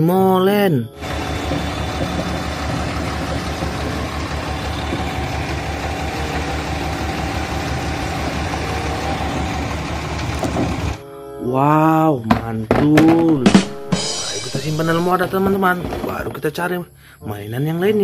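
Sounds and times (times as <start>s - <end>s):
heavy diesel engine throbbing: 1.0s - 11.4s, 13.2s - 16.0s.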